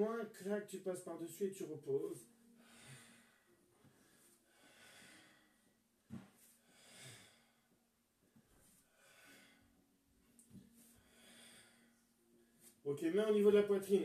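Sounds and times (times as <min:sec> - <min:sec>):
man breathing slowly: 0:02.2 - 0:09.8, 0:10.4 - 0:12.8.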